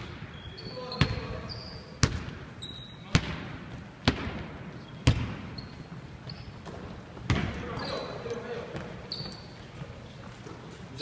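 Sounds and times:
basketball bouncing on hardwood floor: 2.0s - 2.4s, 3.1s - 5.6s, 6.6s - 7.6s.

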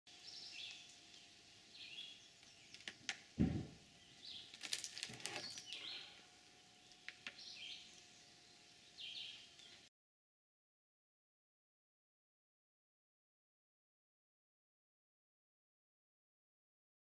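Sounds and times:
faint steady hum: 0.1s - 9.9s
small bird calling: 0.2s - 3.1s, 5.3s - 9.9s
heavy wooden thud: 3.4s - 3.8s
sharp knocks on wood: 3.4s - 3.8s.

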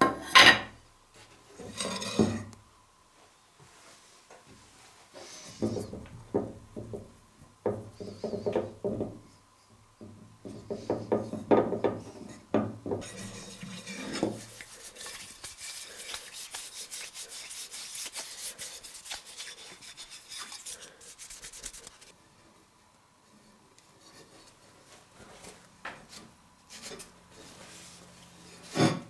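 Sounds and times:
hands rubbing wax into wood: 13.0s - 22.1s.

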